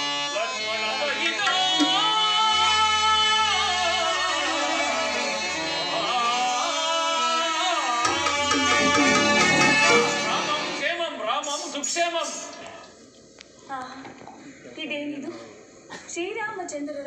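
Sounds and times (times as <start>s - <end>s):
sustained instrumental tones: 1.2s - 3.1s, 8.0s - 10.9s
person singing long wavering notes: 1.4s - 5.4s, 8.0s - 10.8s.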